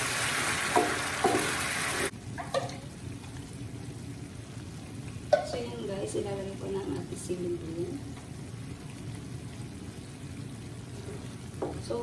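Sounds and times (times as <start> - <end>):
fish sizzling in a frying pan: 0.0 - 12.0
wooden spatula knocking pan: 0.7 - 1.6.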